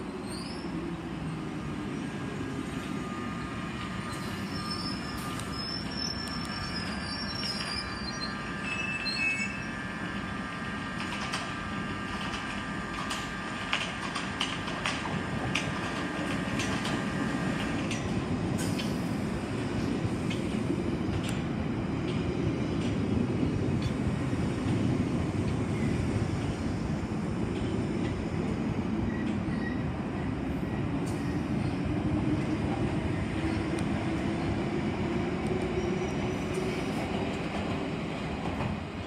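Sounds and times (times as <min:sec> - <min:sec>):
steady train whine: 0:00.0 - 0:39.0
train wheels rumbling on rail: 0:00.0 - 0:39.0
high wheel squeals: 0:04.0 - 0:09.8.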